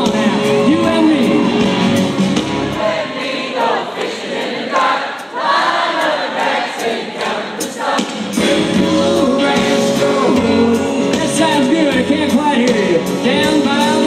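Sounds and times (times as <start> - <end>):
full band playing: 0.0 - 3.8, 6.8 - 14.0
many voices singing a cappella: 2.7 - 11.7.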